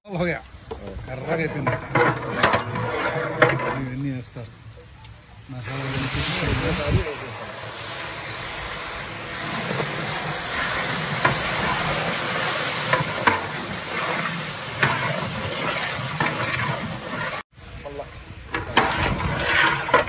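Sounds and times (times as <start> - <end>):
spices sizzling in oil: 0.1 - 20.0
metal paddle scraping a pot: 1.0 - 4.0, 10.5 - 17.4, 18.5 - 20.0.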